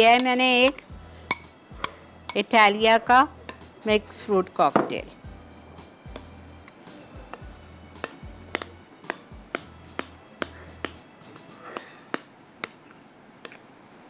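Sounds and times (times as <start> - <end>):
spatula knocking glass bowl: 0.0 - 2.4, 7.3 - 10.2
soft background music: 0.0 - 12.8.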